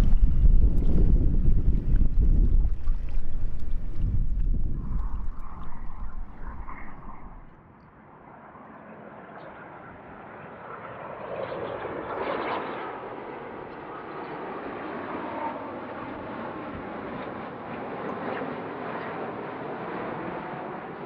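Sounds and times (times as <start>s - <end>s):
wind buffeting microphone: 0.0s - 7.6s
jet engines passing: 0.0s - 21.0s.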